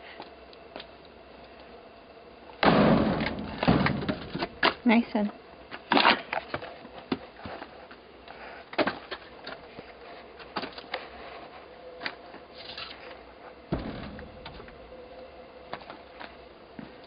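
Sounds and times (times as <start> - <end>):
firewood knocking: 2.6 - 4.7.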